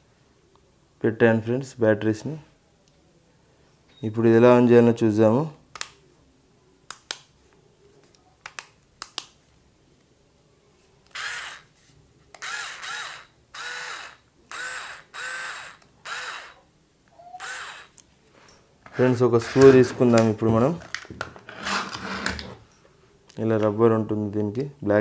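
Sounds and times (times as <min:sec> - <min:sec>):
battery screwdriver motor whirring: 0:11.1 - 0:11.7, 0:12.4 - 0:16.6, 0:17.3 - 0:18.0.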